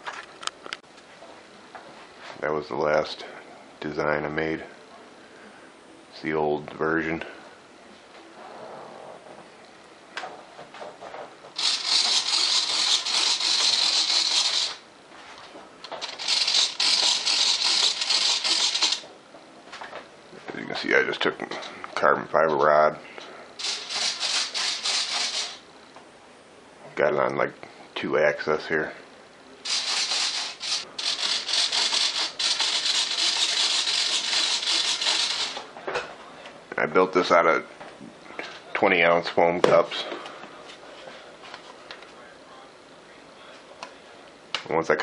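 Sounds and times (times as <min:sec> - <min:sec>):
servos rattly buzz: 0:11.6 - 0:14.8, 0:16.0 - 0:19.0, 0:23.6 - 0:25.6, 0:29.6 - 0:35.6.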